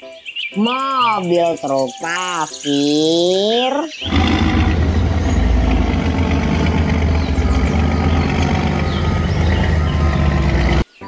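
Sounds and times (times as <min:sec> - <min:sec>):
diesel truck engine running: 0:04.0 - 0:10.9.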